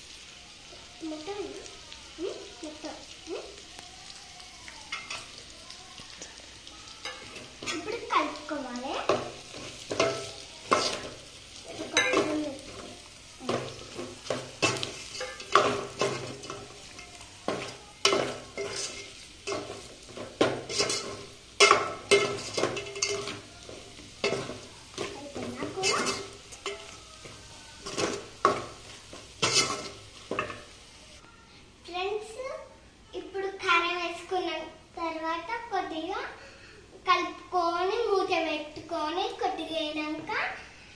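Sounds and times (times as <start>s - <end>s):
spoon stirring and scraping in pot: 4.8s - 5.5s, 7.0s - 31.2s.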